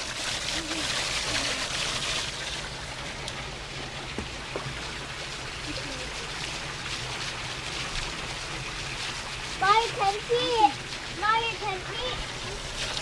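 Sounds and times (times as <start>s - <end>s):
waterfall pouring into tub: 0.0s - 13.0s.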